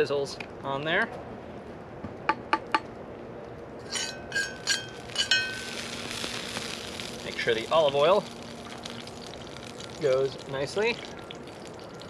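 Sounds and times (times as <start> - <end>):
cookware clinking: 3.9 - 5.6.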